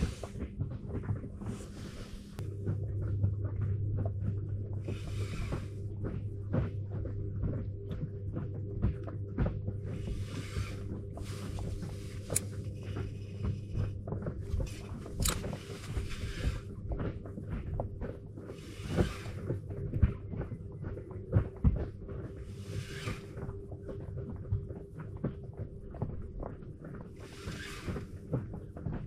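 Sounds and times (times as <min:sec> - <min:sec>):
steady low hum: 0:00.0 - 0:29.0
small tackle clicks: 0:14.8 - 0:16.0.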